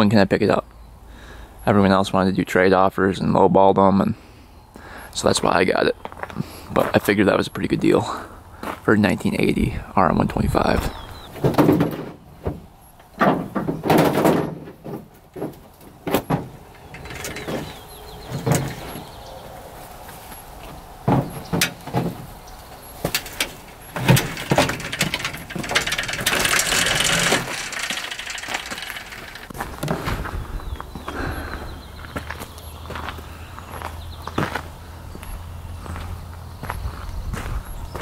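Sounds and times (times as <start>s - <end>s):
motorbike rolling on metal ramp: 11.2s - 19.4s, 21.0s - 30.3s
metallic knocks and clanks: 11.3s - 19.2s, 21.0s - 30.1s.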